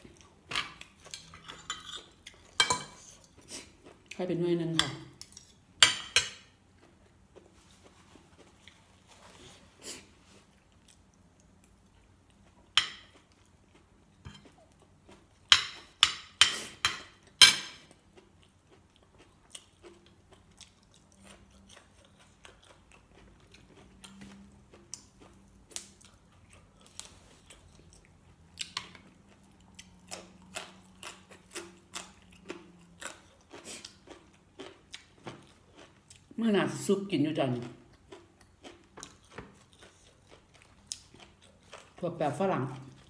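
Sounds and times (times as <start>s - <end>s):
wet chewing: 17.9s - 36.4s, 37.6s - 42.0s.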